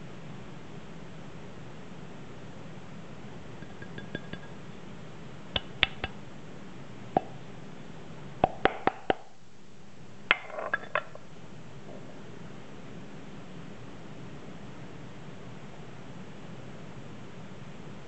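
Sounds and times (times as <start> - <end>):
glass cup clinking on metal: 3.6 - 4.6, 10.6 - 11.1.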